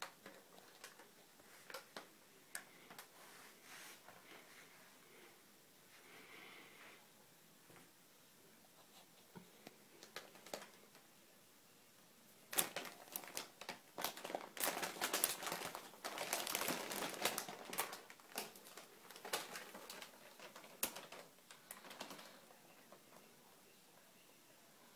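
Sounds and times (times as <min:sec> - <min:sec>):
paper bag crinkling: 0:10.0 - 0:10.8, 0:12.5 - 0:23.0.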